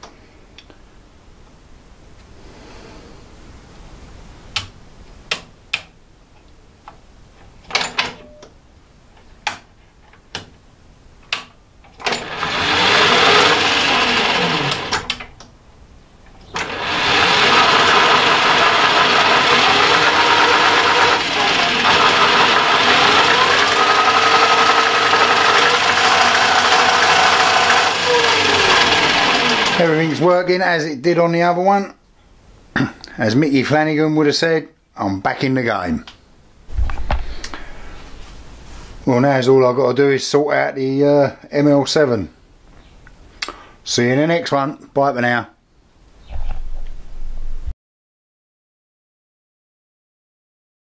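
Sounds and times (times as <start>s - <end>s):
lathe motor spinning with whine: 12.1s - 15.2s, 16.5s - 30.2s.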